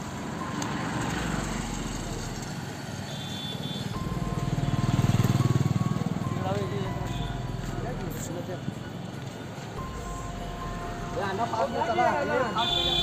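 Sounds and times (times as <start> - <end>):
street traffic noise: 0.0 - 13.0
background music: 4.0 - 13.0.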